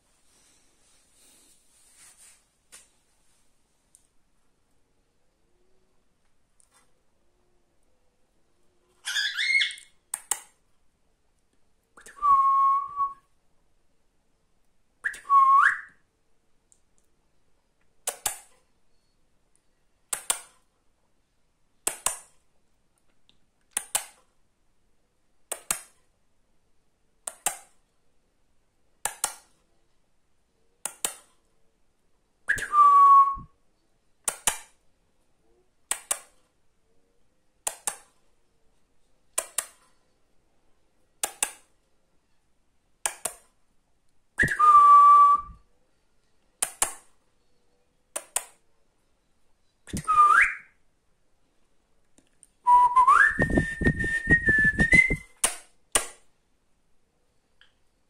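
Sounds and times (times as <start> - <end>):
finger snaps: 9.8 - 10.6, 12.0 - 12.3, 15.0 - 15.9, 18.0 - 18.5, 20.1 - 20.5, 21.8 - 22.3, 25.5 - 26.0, 27.3 - 27.8, 30.8 - 31.3, 32.5 - 32.9, 34.3 - 34.7, 35.9 - 36.4, 37.6 - 38.1, 39.4 - 39.8, 41.2 - 41.7, 44.4 - 44.8, 46.6 - 47.1, 48.2 - 48.6, 49.9 - 50.6
short sliding whistle: 52.7 - 55.2.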